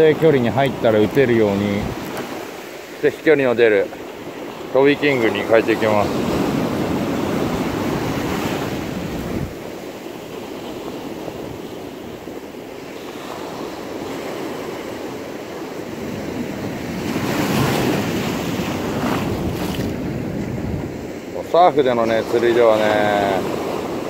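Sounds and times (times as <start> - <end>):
wind on microphone: 0.0 - 2.4, 5.7 - 9.8, 16.0 - 21.4
ocean surf washing onto beach: 0.0 - 24.0.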